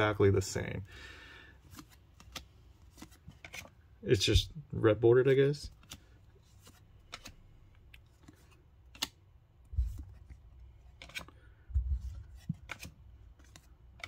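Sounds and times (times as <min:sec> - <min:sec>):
trading cards snapping: 0:01.6 - 0:03.7, 0:05.7 - 0:09.3, 0:12.6 - 0:14.0
soft thuds of handled cards: 0:08.0 - 0:10.4, 0:11.0 - 0:14.0.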